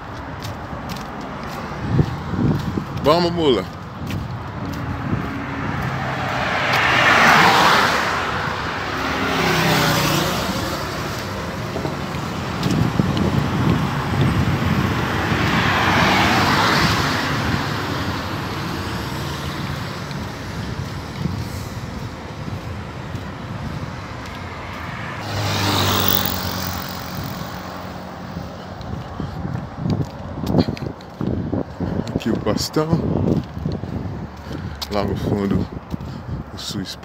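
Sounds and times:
vehicles passing on highway: 0.0 - 37.0.

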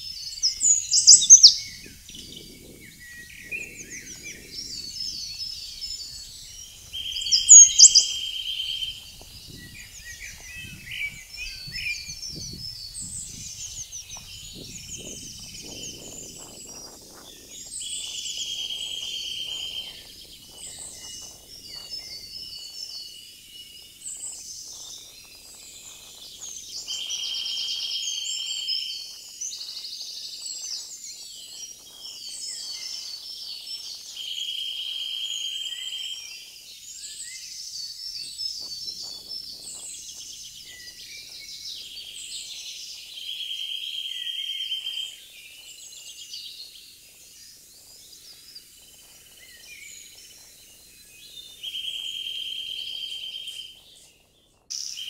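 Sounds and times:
bird trill: 0.0 - 29.8, 49.0 - 54.1, 54.7 - 55.0
woodland birds singing: 0.0 - 55.0.

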